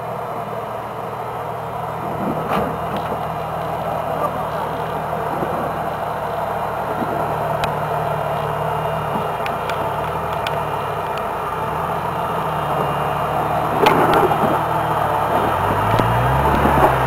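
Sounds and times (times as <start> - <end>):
car engine running low: 0.0 - 17.0
sharp clicks: 9.1 - 11.3.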